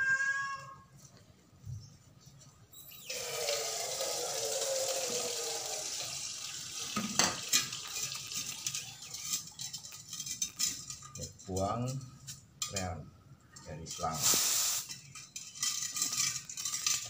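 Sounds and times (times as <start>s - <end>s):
gas hissing with whistle: 2.7s - 6.9s, 14.2s - 15.0s.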